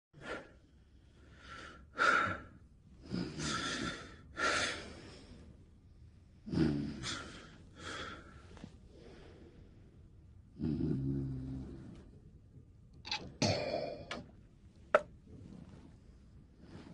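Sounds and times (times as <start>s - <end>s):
low snoring rasp: 6.4s - 7.5s, 10.6s - 12.1s.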